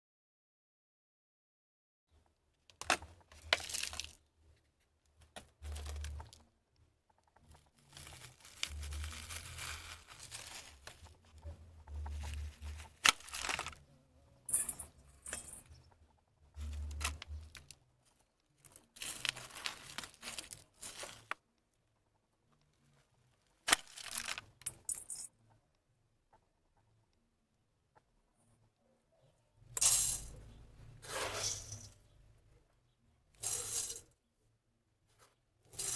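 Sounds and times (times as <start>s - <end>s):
plastic tray crinkling: 2.7s - 4.2s, 7.4s - 13.8s, 18.7s - 21.4s, 23.7s - 24.5s
potting soil rustling: 2.8s - 4.6s, 5.4s - 6.5s, 7.4s - 13.9s, 16.5s - 21.4s, 31.0s - 32.2s.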